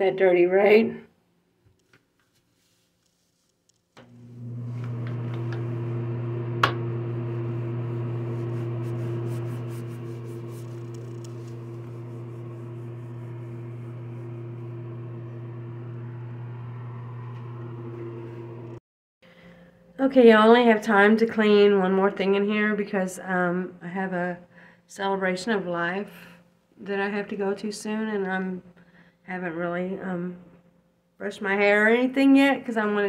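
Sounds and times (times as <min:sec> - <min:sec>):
electric motor hum: 0:04.0 - 0:18.8.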